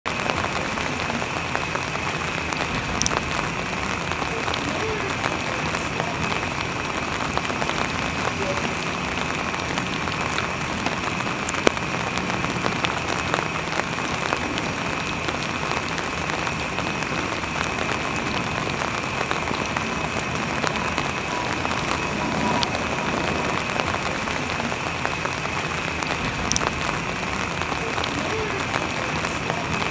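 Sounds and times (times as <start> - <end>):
steady rain falling: 0.0 - 29.9
drops ticking on hard surfaces: 25.2 - 29.9.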